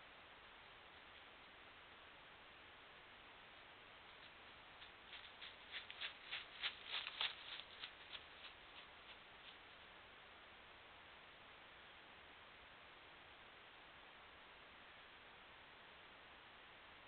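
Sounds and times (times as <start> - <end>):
footsteps rustling on frosty litter: 4.2 - 9.8.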